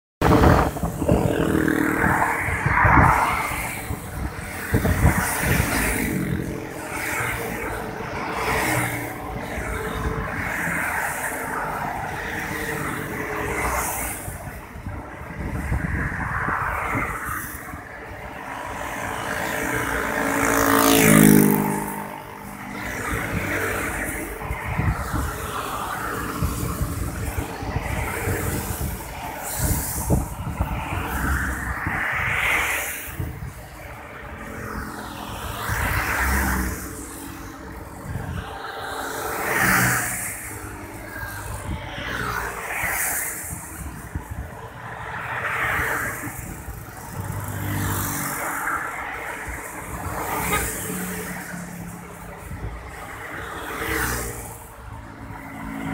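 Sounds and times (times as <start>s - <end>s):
traffic rumble: 0.2s - 55.9s
vehicle rushing past: 18.4s - 32.9s.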